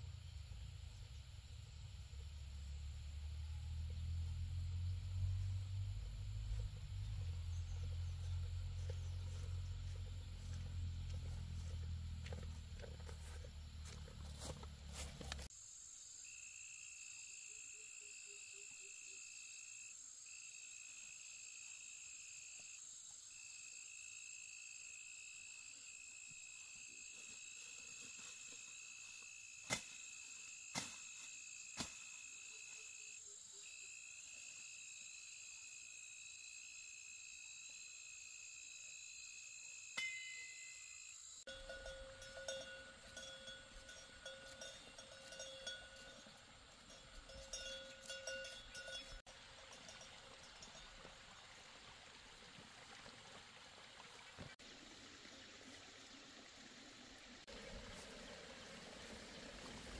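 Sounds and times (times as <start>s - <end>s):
insects droning: 0.0s - 52.2s
steady ringing tones: 40.0s - 50.9s.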